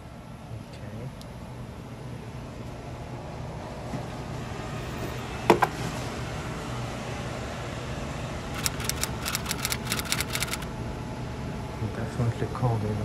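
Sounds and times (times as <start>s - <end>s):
sharp clicks: 8.5s - 10.7s.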